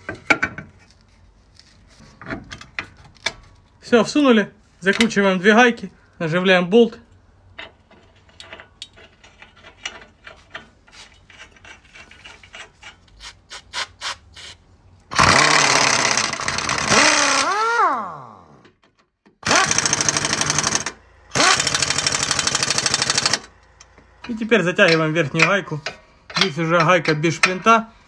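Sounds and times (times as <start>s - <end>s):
impact wrench hammering: 19.4s - 23.5s.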